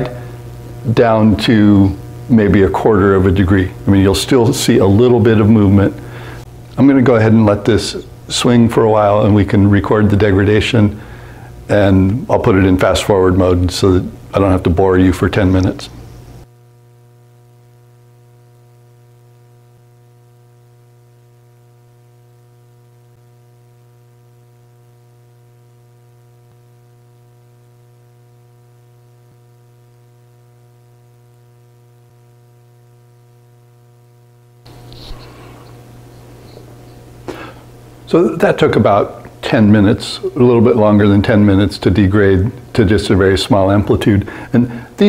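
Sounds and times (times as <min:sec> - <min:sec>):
faint room noise: 0:00.0 - 0:33.2, 0:34.7 - 0:45.0
electrical mains hum: 0:00.0 - 0:45.0.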